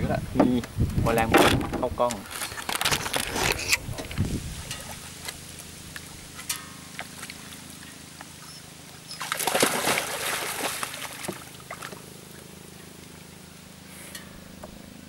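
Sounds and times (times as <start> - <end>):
dog splashing through water: 9.0 - 12.1.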